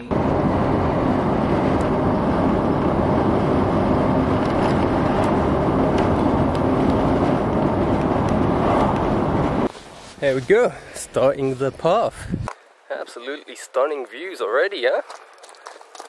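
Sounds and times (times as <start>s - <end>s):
vehicle rumble: 0.0s - 12.5s.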